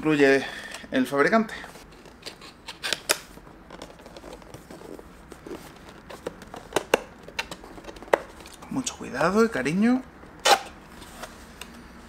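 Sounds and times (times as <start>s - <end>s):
cardboard scratching and rustling: 3.6s - 6.9s.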